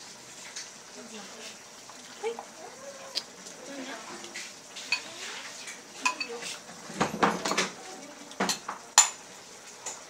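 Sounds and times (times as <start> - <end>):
metal tongs clinking on bowl and wok: 4.9 - 5.1, 6.0 - 6.6.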